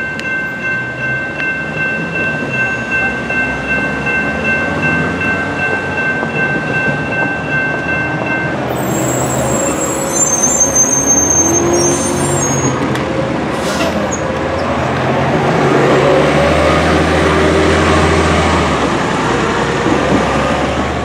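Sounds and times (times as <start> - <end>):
railroad crossing bell ringing: 0.0 - 12.9
bus whining: 0.0 - 21.0
road traffic passing: 0.5 - 21.0.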